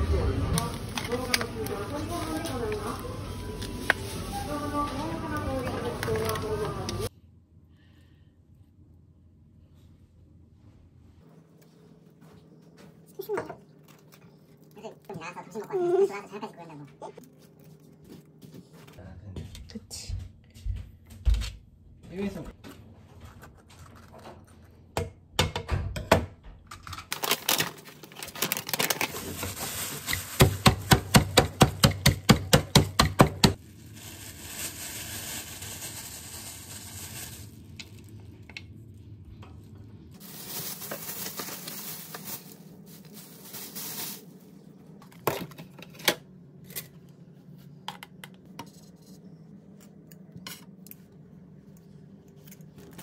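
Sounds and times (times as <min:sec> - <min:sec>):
plastic bag crinkling: 0:00.6 - 0:07.1, 0:27.1 - 0:30.9, 0:33.6 - 0:38.4, 0:40.2 - 0:44.7.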